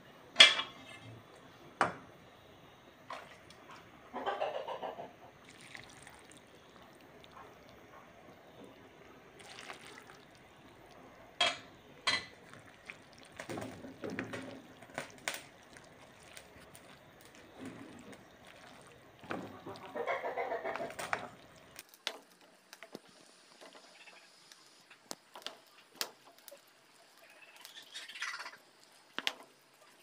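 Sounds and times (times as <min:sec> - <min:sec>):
spoon stirring in broth: 0:09.4 - 0:21.8.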